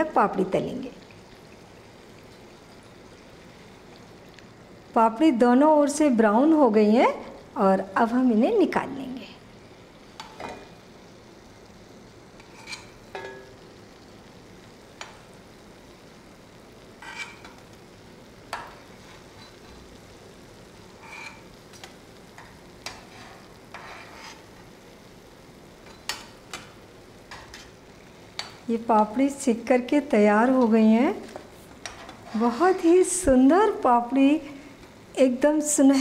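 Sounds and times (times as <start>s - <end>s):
food sizzling in hot oil: 0.0s - 36.0s
metal spoon clinking on pan: 12.5s - 13.6s.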